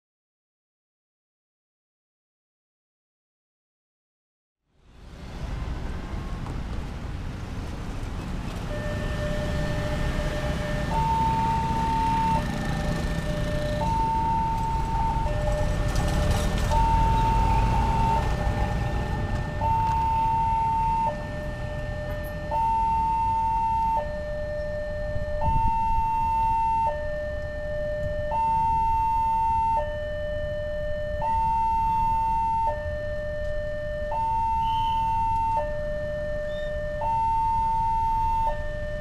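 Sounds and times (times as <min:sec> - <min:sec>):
low traffic rumble: 0:04.6 - 0:39.0
level crossing two-tone alarm: 0:08.7 - 0:39.0.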